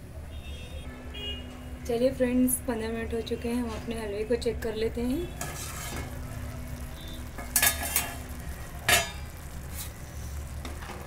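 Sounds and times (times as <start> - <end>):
milk bubbling and sizzling: 1.1 - 11.0
metal scraping against pan: 5.2 - 6.2, 7.2 - 10.3.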